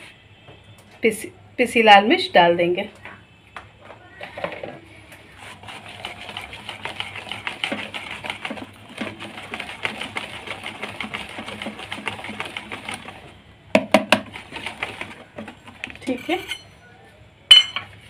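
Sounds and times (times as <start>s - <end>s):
whisk beating batter in bowl: 5.4s - 13.3s, 13.9s - 16.1s.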